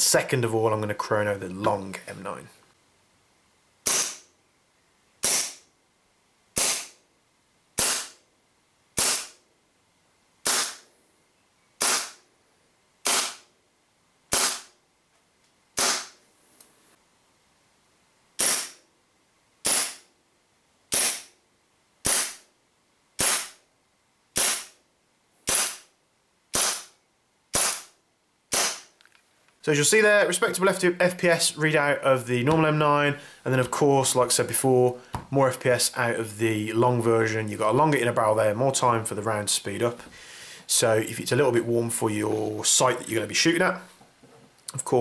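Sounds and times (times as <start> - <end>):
airsoft pistol shots: 3.8 - 4.3, 5.2 - 5.7, 6.6 - 7.0, 7.8 - 8.2, 9.0 - 9.4, 10.4 - 10.9, 11.8 - 12.2, 13.0 - 13.5, 14.3 - 14.8, 15.8 - 16.2, 18.4 - 18.8, 19.6 - 20.1, 20.9 - 21.3, 22.0 - 22.5, 23.2 - 23.6, 24.4 - 24.8, 25.5 - 25.9, 26.5 - 28.9.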